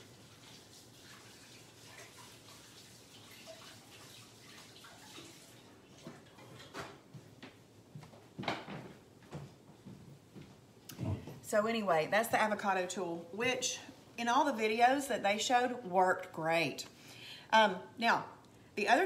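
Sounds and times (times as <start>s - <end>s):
tap water running: 0.0s - 6.9s.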